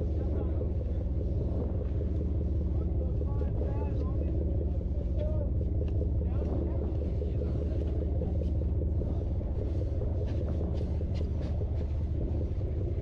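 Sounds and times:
boat engine rumbling: 0.0 - 13.0
faint ticks: 0.0 - 13.0.

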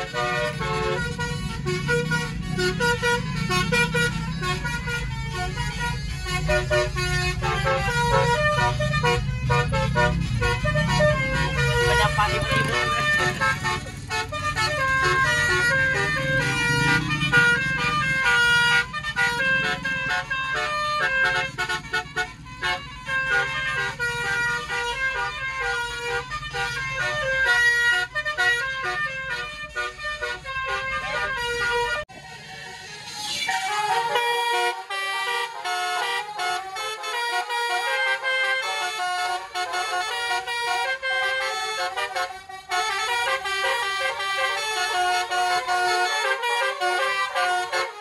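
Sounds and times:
musical air horn melody: 0.0 - 48.0
vehicle engine rumble: 0.0 - 48.0.

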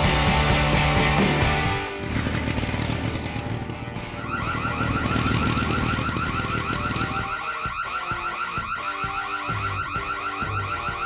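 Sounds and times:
burglar alarm siren warbling: 4.0 - 11.0.

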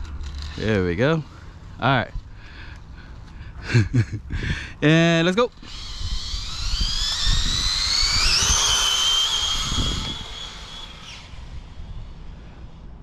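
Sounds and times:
electric motor whine: 5.6 - 13.0.

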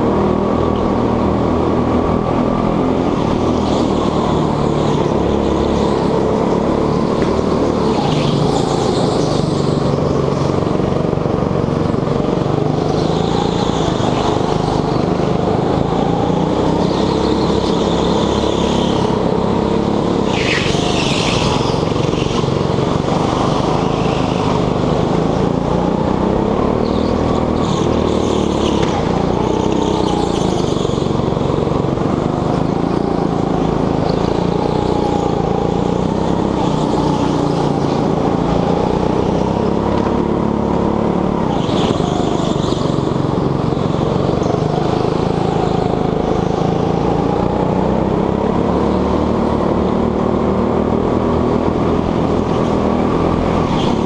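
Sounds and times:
go-kart engine running hard: 0.0 - 54.0
tyre squeals: 16.4 - 25.4.

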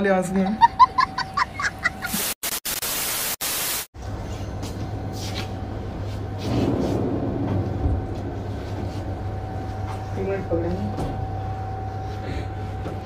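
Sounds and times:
tv static hiss: 2.0 - 3.9
steady low hum: 4.0 - 13.0.

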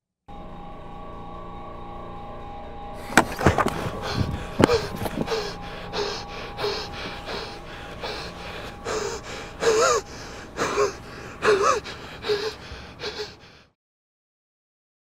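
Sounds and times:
man sobbing: 3.3 - 13.7.

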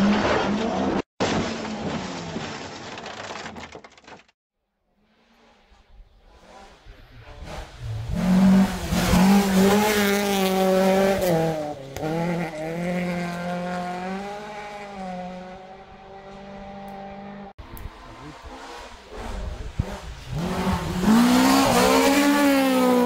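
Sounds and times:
tyres on gravel: 0.0 - 4.3
rally car engine at high revs: 5.4 - 23.0.

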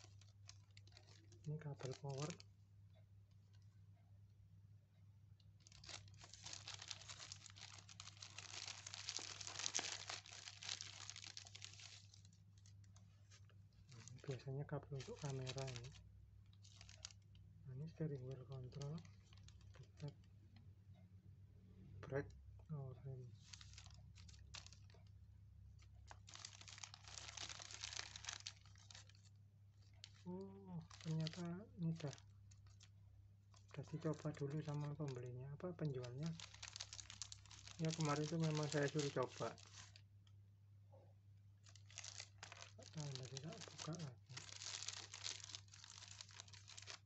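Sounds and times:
plastic bag crinkling: 0.0 - 2.5, 5.6 - 20.2, 23.4 - 25.1, 25.7 - 40.1, 41.6 - 47.0.

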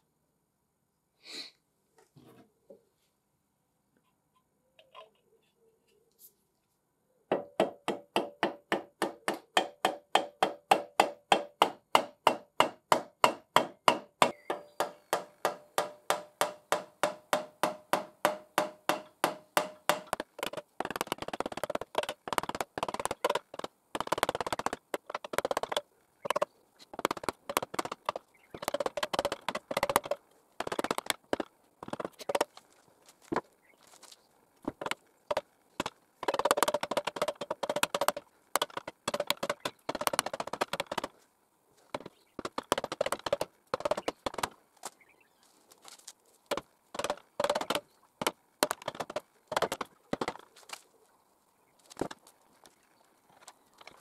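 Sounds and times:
ringing metallic taps: 12.3 - 21.1.

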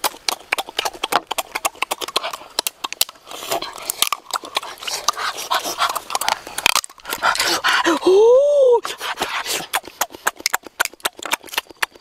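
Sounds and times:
wet chewing and sucking: 0.0 - 8.0, 8.8 - 12.0
crab shell cracking: 5.9 - 7.4.

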